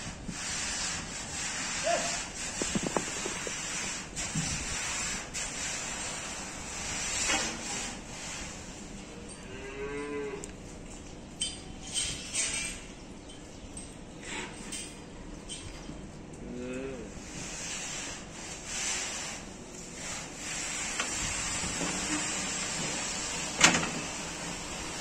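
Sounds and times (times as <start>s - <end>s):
steady hiss: 0.0s - 8.7s
calf mooing: 9.4s - 10.5s.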